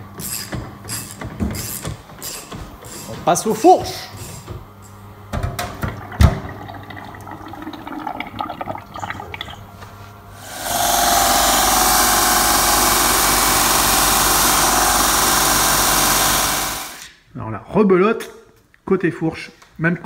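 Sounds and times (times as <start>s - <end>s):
belt sander grinding metal rod: 10.4s - 17.0s.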